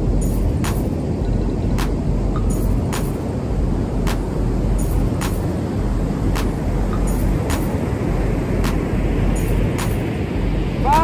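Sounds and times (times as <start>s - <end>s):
ocean surf: 0.0s - 11.0s
wind rumbling on microphone: 0.0s - 11.0s
steady sharp clicks: 1.8s - 3.2s, 4.1s - 5.6s, 6.3s - 7.8s, 8.6s - 10.1s.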